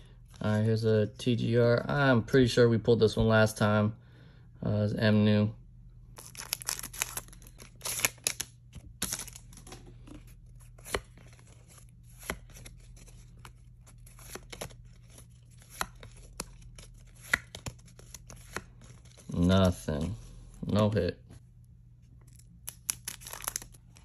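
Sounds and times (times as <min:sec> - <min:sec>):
foil wrapper crinkling: 0:06.2 - 0:09.8, 0:22.7 - 0:24.0.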